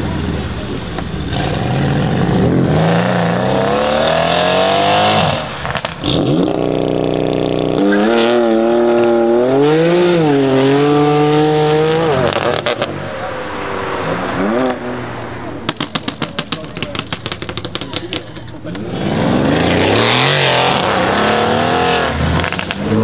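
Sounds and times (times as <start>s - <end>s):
car engine revving: 0.0s - 23.0s
exhaust pops and crackles: 5.4s - 7.8s, 15.6s - 18.9s.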